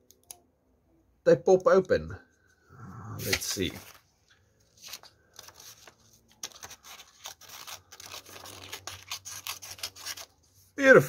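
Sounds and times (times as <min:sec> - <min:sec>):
scissors snipping paper: 0:04.9 - 0:10.3.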